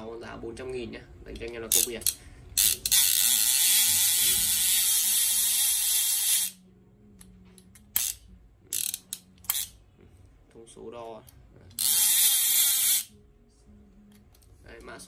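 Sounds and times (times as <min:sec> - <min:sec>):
fishing reel whirring: 0:01.7 - 0:06.6, 0:11.8 - 0:13.1.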